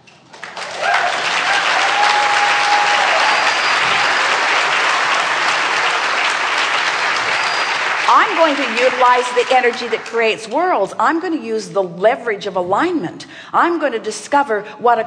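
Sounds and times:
audience applauding: 0.2 - 10.3.

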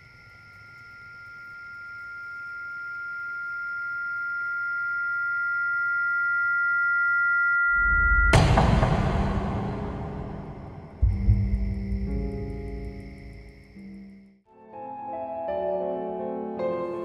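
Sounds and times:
high-pitched electronic tone: 1.0 - 9.2.

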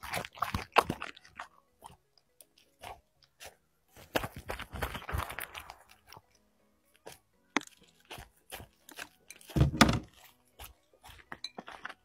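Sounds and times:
dog crunching food: 0.0 - 3.0.

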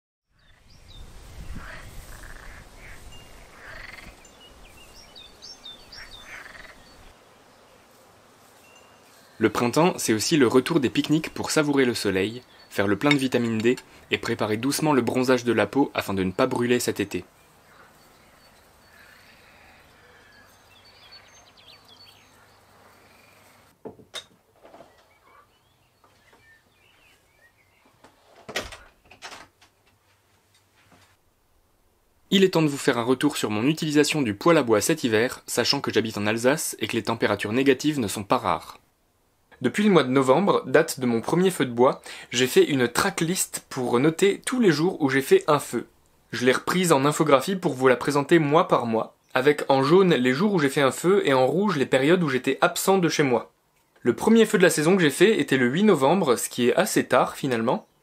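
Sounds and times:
birds chirping: 0.3 - 23.7, 24.6 - 30.0, 53.2 - 58.0
wind rumble on microphone: 0.4 - 5.1
wooden door opening and shutting: 28.0 - 30.0.

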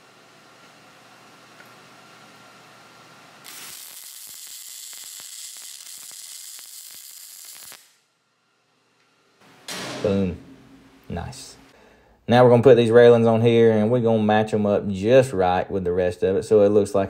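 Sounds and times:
welding arc hissing and crackling: 3.4 - 8.1.

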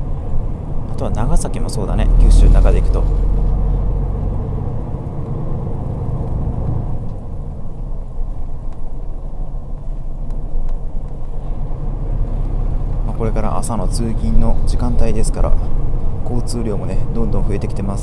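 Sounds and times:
bus engine rumble: 0.0 - 18.0
road noise: 0.0 - 18.0.

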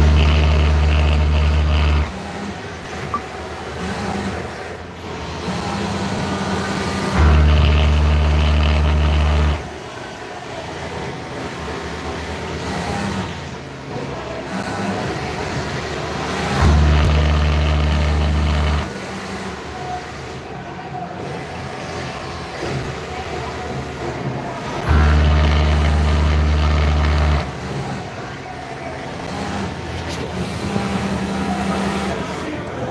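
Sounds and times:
industrial sewing machine stitching: 0.0 - 2.3, 5.4 - 9.7, 14.5 - 19.0, 24.7 - 28.0
background din of machines: 0.0 - 32.9.

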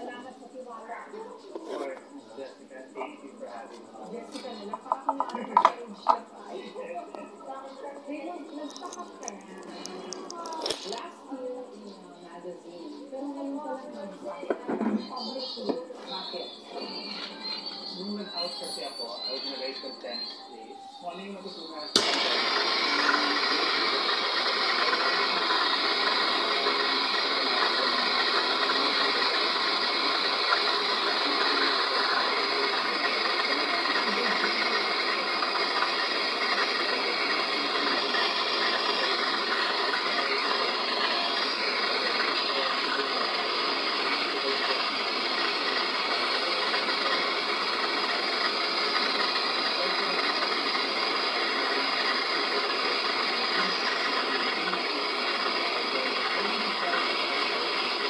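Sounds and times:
gas torch flame hissing: 21.9 - 58.0.

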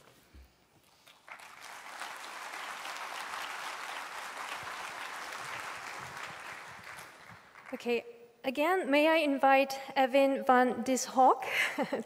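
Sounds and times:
audience applauding: 1.0 - 7.9.

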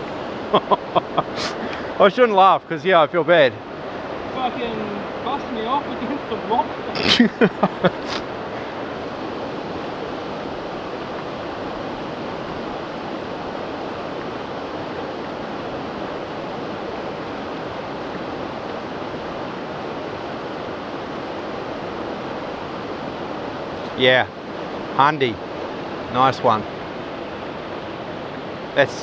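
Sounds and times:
river water flowing over rocks: 0.0 - 29.0.

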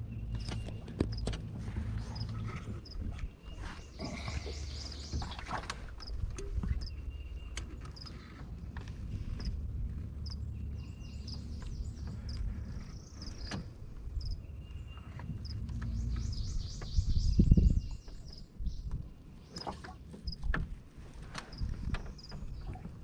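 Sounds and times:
steady low hum: 0.0 - 19.5
birds chirping: 0.0 - 19.9.

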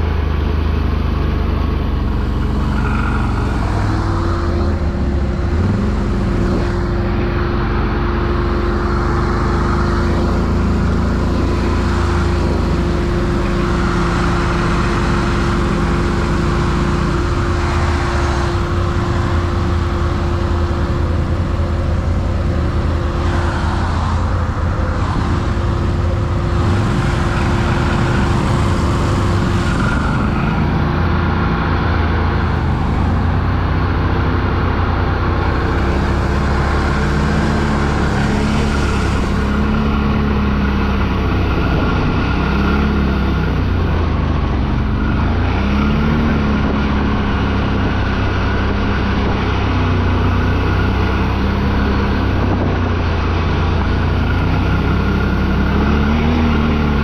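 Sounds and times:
atv engine drone: 0.0 - 57.0
steady whine: 0.0 - 57.0.

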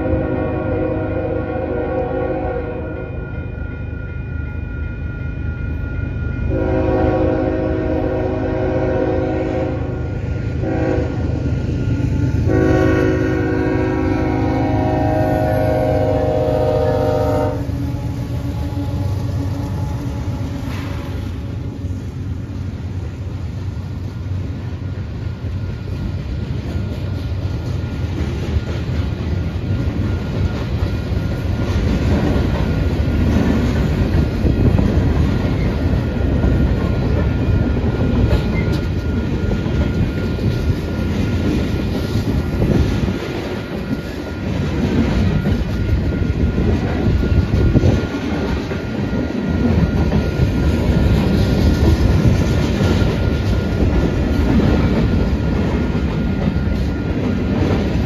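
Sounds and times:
locomotive horn: 0.0 - 3.2, 6.5 - 11.5, 12.4 - 21.8
diesel locomotive rumbling: 0.0 - 58.0
rail cars clattering over joints: 15.6 - 58.0.

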